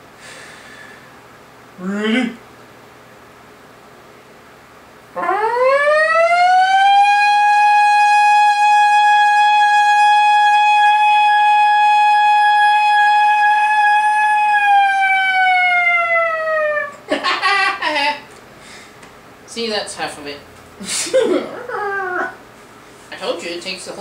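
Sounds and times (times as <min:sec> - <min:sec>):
man imitating a siren: 0:05.2 - 0:17.0.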